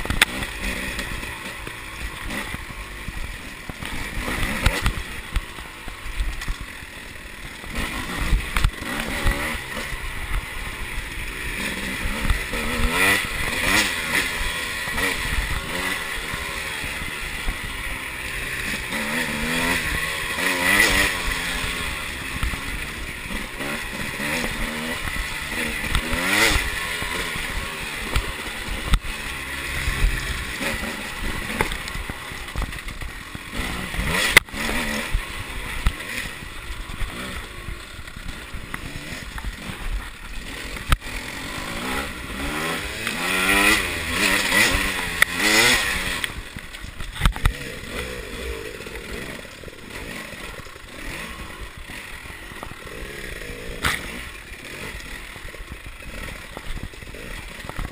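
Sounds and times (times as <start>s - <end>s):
dirt bike engine revving: 0.0s - 57.9s.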